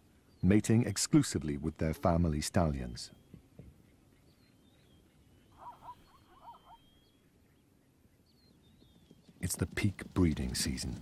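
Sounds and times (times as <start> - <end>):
soft animal calls: 0.0 - 9.5
thin high chirps and whistles: 5.5 - 7.2.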